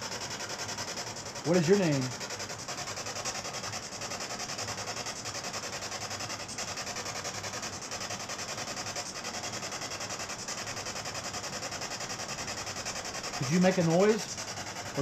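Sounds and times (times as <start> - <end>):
pulsing radio static: 0.2 - 10.5, 12.2 - 15.0.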